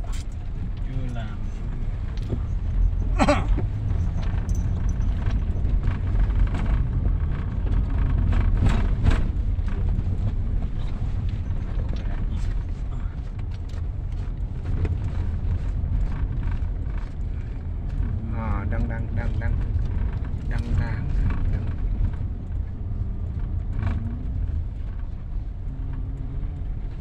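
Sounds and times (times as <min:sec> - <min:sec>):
car knocks and rattles: 0:00.0 - 0:27.0
engine and tyres rumbling: 0:00.0 - 0:27.0.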